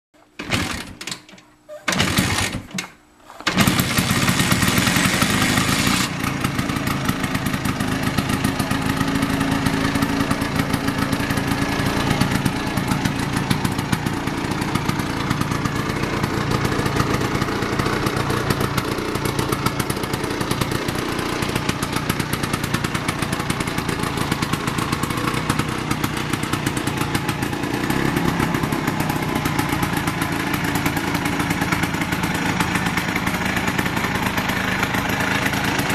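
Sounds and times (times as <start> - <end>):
scooter engine starting and running: 0.2 - 35.9.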